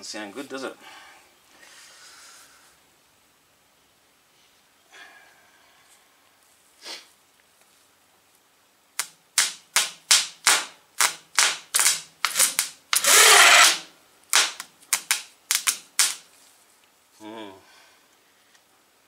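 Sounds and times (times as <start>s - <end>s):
starter motor whirring: 13.0s - 13.8s.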